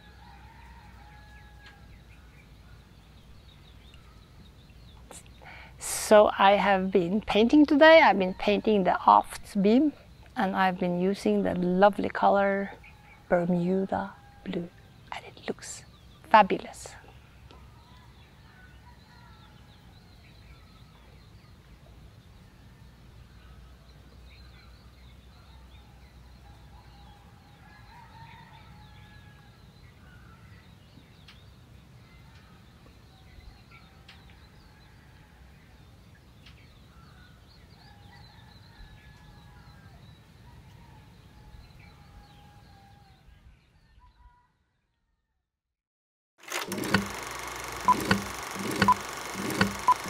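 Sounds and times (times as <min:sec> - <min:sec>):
drawn-out bird calls: 0:46.7 - 0:50.0.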